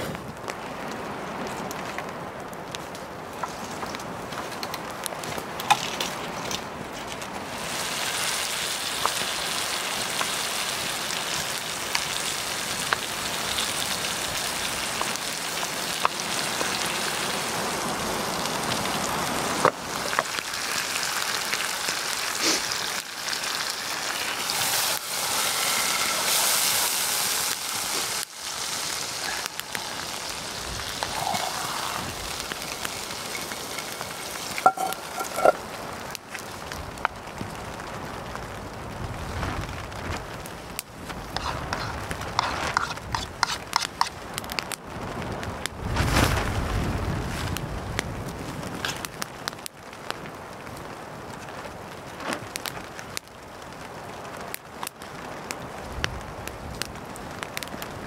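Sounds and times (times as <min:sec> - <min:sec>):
campfire crackling: 0:00.0 - 0:58.0
food sizzling in a pan: 0:07.5 - 0:17.6, 0:19.8 - 0:35.8.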